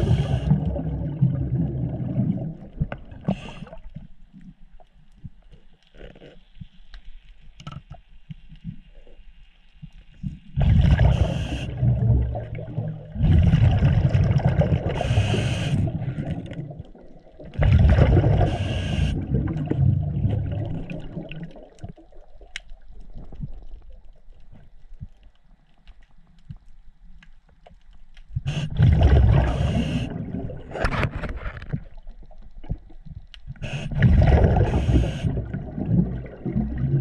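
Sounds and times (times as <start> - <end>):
soft breathing hiss: 0.0 - 0.8, 3.2 - 11.8, 14.9 - 16.4, 18.4 - 19.3, 29.4 - 30.3, 33.4 - 34.0, 34.6 - 35.5
exhaled air bubbling underwater: 0.0 - 5.5, 10.1 - 25.3, 28.3 - 37.0.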